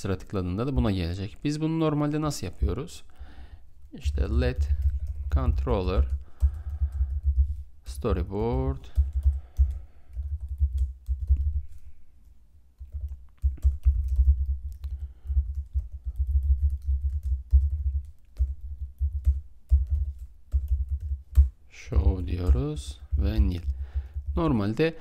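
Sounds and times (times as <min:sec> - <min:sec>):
typing on computer keyboard: 0:04.6 - 0:07.6, 0:08.4 - 0:11.6, 0:12.8 - 0:21.6.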